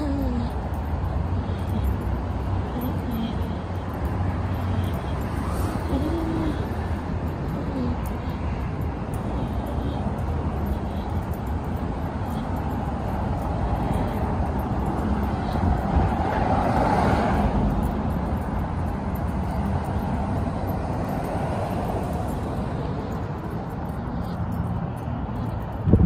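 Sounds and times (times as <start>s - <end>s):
road traffic noise: 0.0s - 26.0s
vehicle passing close by: 11.4s - 26.0s.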